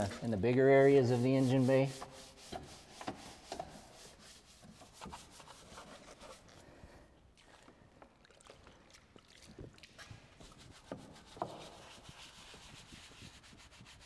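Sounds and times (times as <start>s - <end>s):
brush scrubbing wet surface: 0.0s - 6.8s, 9.4s - 14.0s.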